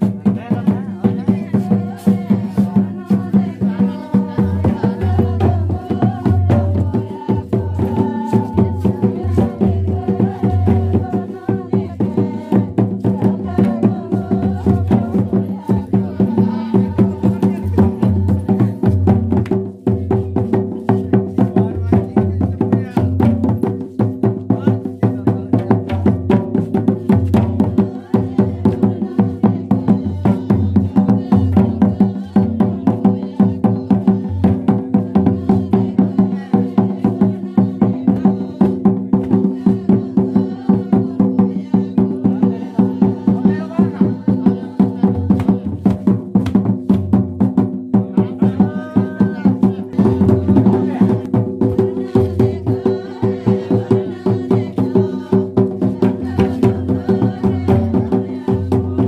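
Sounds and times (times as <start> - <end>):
voices singing: 0.0 - 46.6, 47.5 - 59.0
barrel hand drums beating: 0.0 - 59.0.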